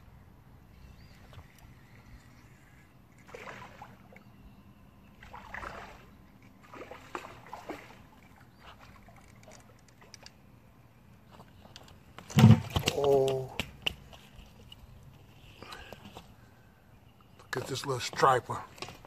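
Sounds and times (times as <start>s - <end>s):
water sloshing and splashing: 1.1s - 10.6s.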